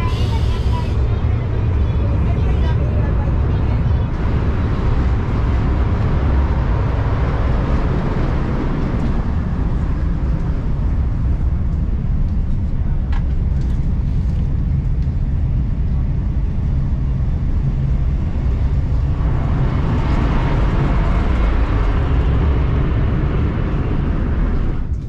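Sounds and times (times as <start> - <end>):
hissing rush: 0.0 - 10.2
train cabin rumble: 0.0 - 25.0.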